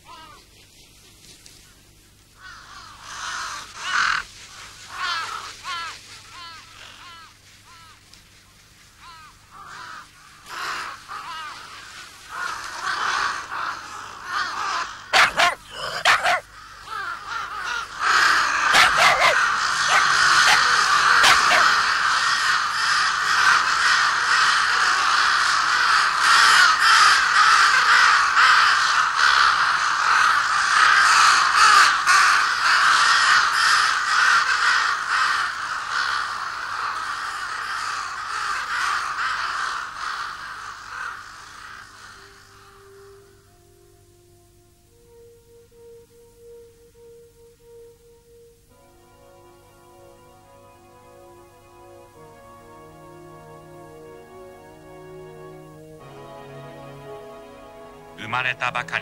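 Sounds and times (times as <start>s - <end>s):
crows cawing: 0.0s - 0.5s, 1.5s - 43.5s, 58.2s - 59.0s.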